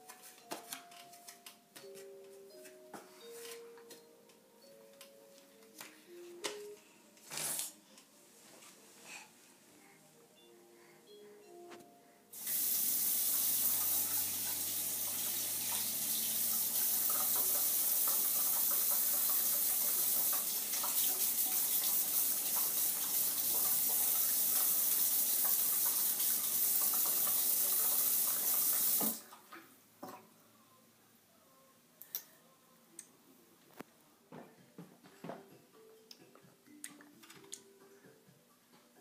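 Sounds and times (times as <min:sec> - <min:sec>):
faucet running into sink: 0:12.4 - 0:29.3.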